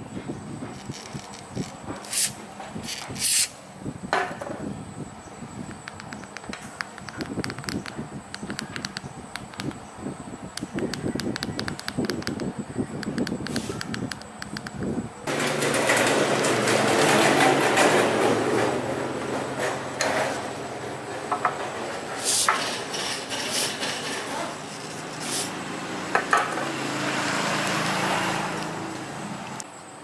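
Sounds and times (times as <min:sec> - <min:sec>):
metallic knocks and clanks: 0:15.3 - 0:24.3.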